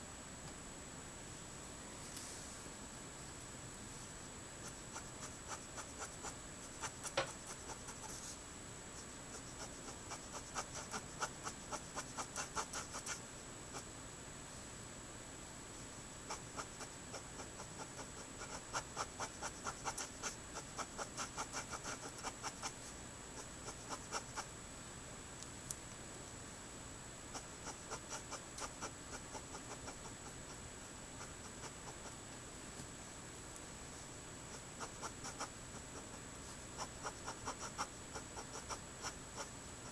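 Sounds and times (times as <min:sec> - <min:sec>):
marker scratching on paper: 0:04.6 - 0:08.4, 0:09.0 - 0:13.9, 0:16.3 - 0:22.8, 0:23.4 - 0:24.5, 0:27.4 - 0:30.6, 0:31.2 - 0:32.2, 0:34.5 - 0:39.9.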